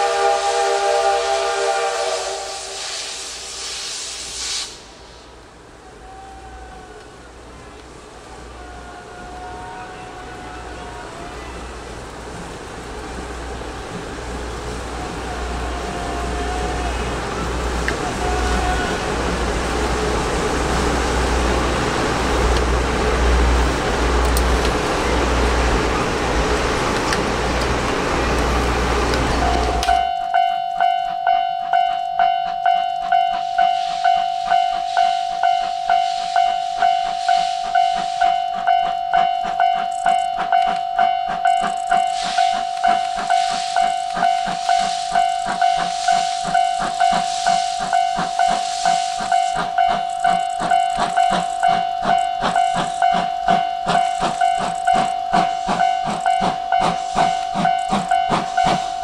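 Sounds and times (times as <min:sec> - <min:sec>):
hiss of steam: 0:00.0 - 0:07.0, 0:33.4 - 0:38.8, 0:41.9 - 0:59.0
steam train passing: 0:00.0 - 0:59.0
traffic-like noise: 0:04.7 - 0:59.0
level-crossing alarm ringing: 0:29.3 - 0:59.0.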